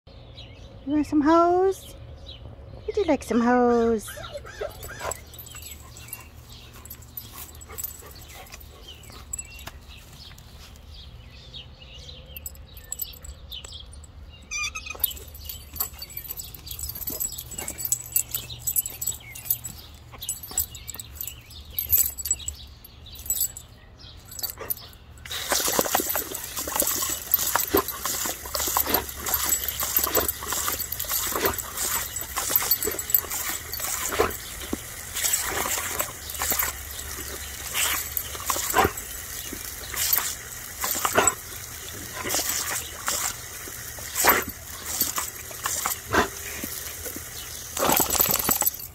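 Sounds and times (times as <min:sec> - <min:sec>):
dog lapping at spray: 0:04.6 - 0:10.6, 0:24.4 - 0:48.9
dog licking and biting nozzle: 0:24.4 - 0:48.9.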